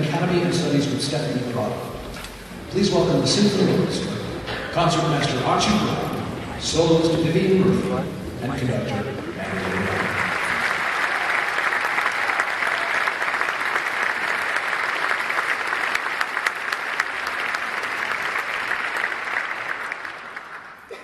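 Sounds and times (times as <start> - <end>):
audience applauding: 9.3 - 21.0.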